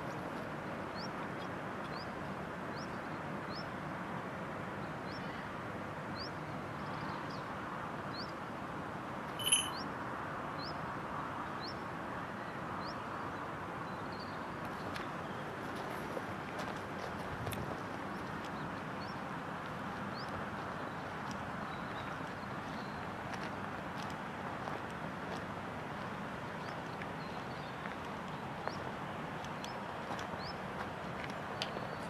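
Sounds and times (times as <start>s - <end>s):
brief ringing note: 9.4s - 9.8s
small bird chirping: 9.4s - 9.8s.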